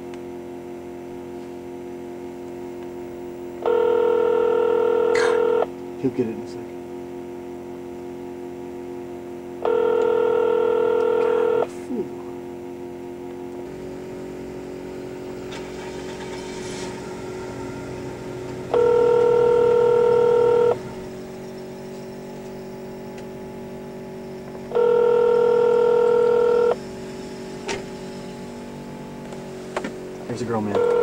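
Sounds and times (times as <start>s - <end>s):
faint steady hum: 0.0s - 31.0s
phone ringback tone: 3.6s - 5.7s, 9.6s - 11.7s, 18.7s - 20.8s, 24.7s - 26.8s, 30.8s - 31.0s.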